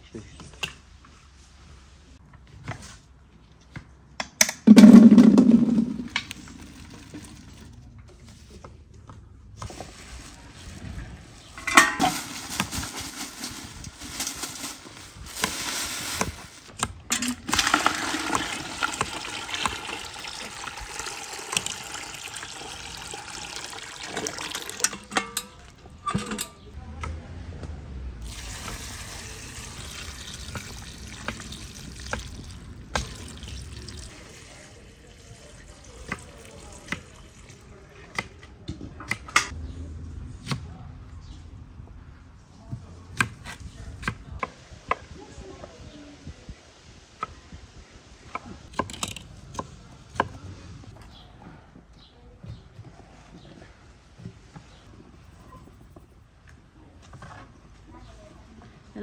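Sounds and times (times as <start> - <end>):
heavy thump into metal pot: 4.7 - 6.3
liquid pouring: 4.7 - 7.7, 17.3 - 25.2, 28.2 - 37.8
water running and splashing: 17.4 - 25.1, 28.2 - 37.8.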